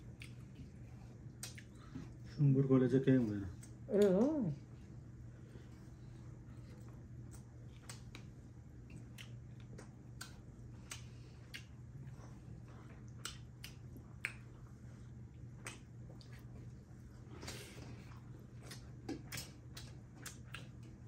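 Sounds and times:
wet chewing and lip-smacking: 0.0 - 2.4, 3.0 - 4.5, 5.5 - 21.0
faint low hum: 0.0 - 21.0.

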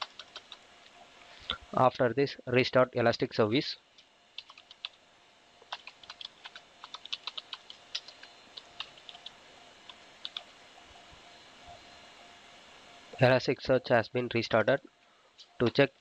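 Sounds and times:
typing on computer keyboard: 0.0 - 0.6, 4.4 - 5.0, 5.7 - 9.3, 9.9 - 10.5
faint steady hum: 0.0 - 16.0.

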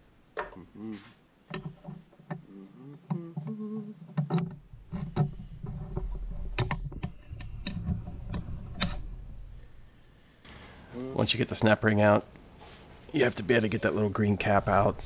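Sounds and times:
metal tools clicking and tapping: 1.5 - 2.4.

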